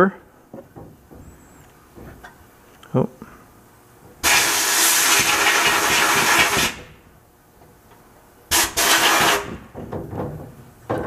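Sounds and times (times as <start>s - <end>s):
abrasive blasting hiss: 4.2s - 6.8s.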